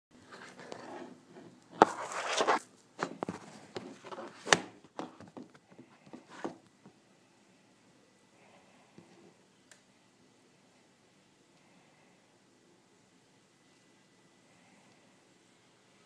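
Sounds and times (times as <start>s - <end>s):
device handling rustling: 1.7s - 6.7s.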